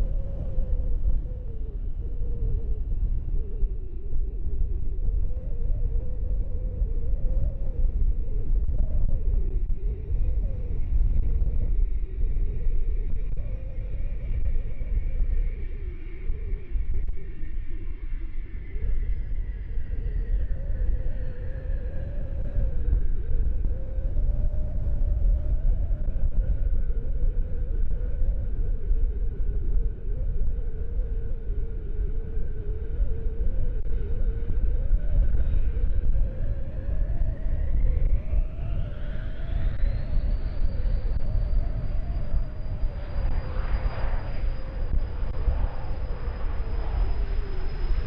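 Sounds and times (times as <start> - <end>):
wind rumble on microphone: 0.0 - 48.0
jet engines whining: 39.5 - 48.0.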